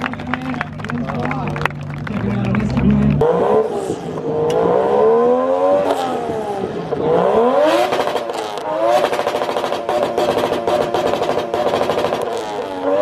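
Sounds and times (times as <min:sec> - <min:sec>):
car engine revving: 0:00.0 - 0:13.0
exhaust popping crackle: 0:07.8 - 0:12.7.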